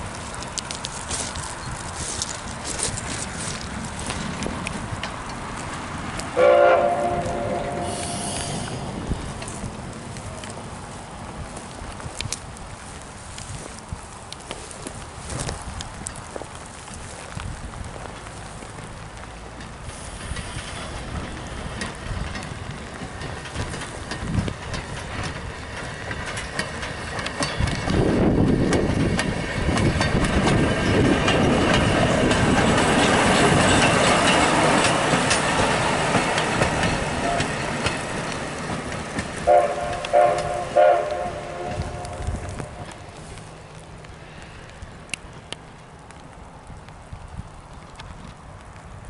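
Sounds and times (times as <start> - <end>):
rail motorcar passing: 0.0 - 49.0
wheels clicking over rail joints: 0.0 - 49.0
horn blasts: 6.4 - 8.6, 37.2 - 37.6, 39.4 - 42.8.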